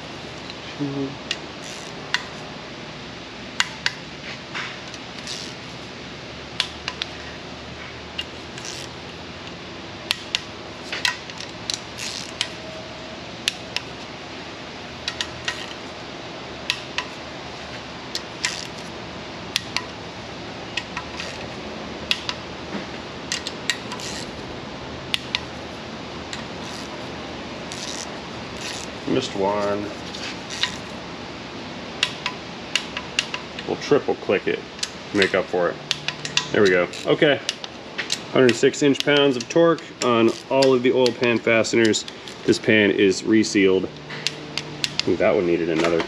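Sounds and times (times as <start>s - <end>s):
steady background hum: 0.0s - 46.0s
torque wrench clicking: 1.3s - 2.4s, 4.9s - 5.6s, 8.2s - 12.8s, 13.4s - 14.0s, 15.0s - 15.8s, 16.6s - 17.2s, 18.1s - 18.9s, 19.5s - 20.0s, 20.7s - 22.4s, 23.3s - 24.4s, 25.1s - 25.6s, 26.3s - 27.0s, 27.7s - 31.0s, 34.8s - 42.5s, 44.0s - 45.1s.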